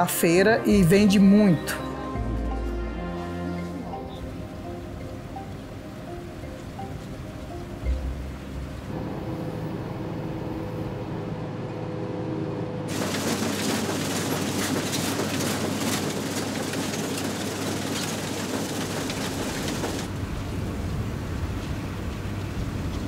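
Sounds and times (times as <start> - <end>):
combine harvester engine hum: 0.0 - 23.0
rattling clatter of harvesting: 12.9 - 20.2.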